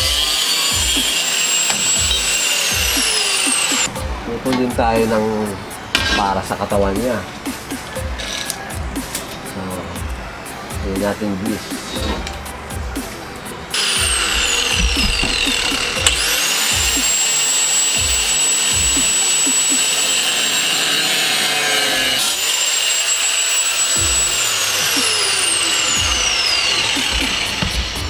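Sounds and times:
angle grinder cutting steel: 0.0s - 3.9s, 13.7s - 28.0s.

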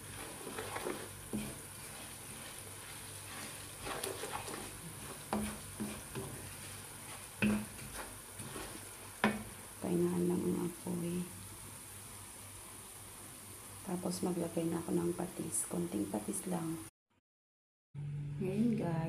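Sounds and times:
wooden spoon scraping a pan: 0.0s - 9.6s
garlic sizzling in oil: 0.0s - 16.8s.

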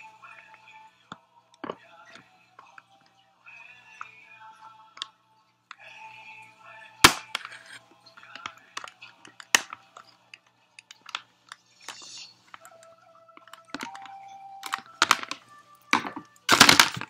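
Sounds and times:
plastic clips snapping: 7.0s - 17.0s.

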